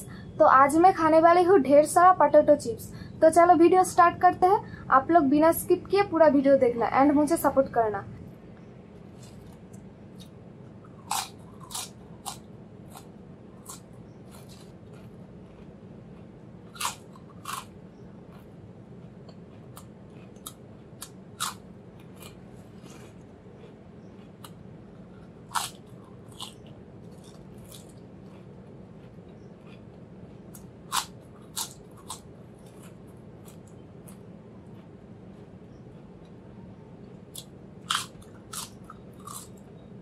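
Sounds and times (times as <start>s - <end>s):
faint steady hum: 0.0s - 40.0s
potato chips crunching: 9.1s - 35.5s, 37.2s - 39.7s.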